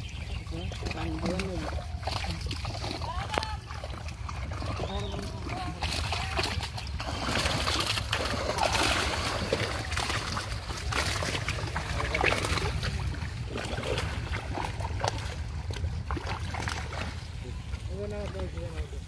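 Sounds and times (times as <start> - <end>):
water splashing and sloshing: 0.0 - 19.0
steady low rumble: 8.1 - 19.0.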